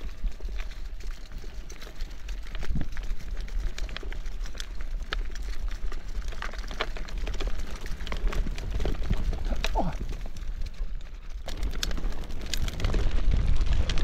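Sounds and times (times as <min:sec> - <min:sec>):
bike clicks and rattles: 0:00.0 - 0:14.0
wind on microphone: 0:02.5 - 0:03.0.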